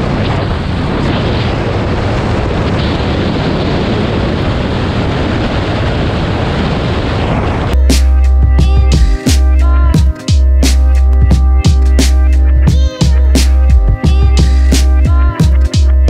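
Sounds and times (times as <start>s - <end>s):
wind noise on microphone: 0.0s - 16.0s
electronic music: 7.8s - 16.0s.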